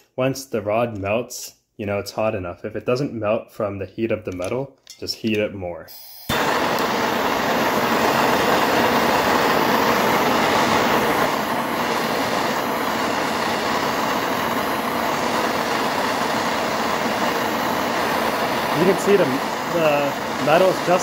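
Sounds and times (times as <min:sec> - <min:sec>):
propane torch flame hissing: 0:06.0 - 0:21.0.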